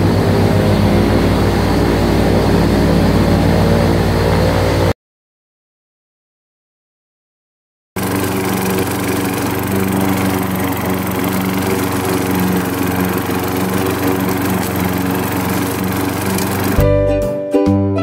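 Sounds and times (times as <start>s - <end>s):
lawn mower engine running: 8.0s - 16.9s.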